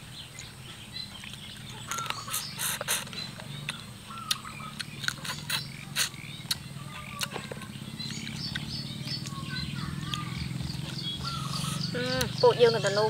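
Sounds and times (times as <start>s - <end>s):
chewing and crunching crab shell: 3.6s - 9.4s.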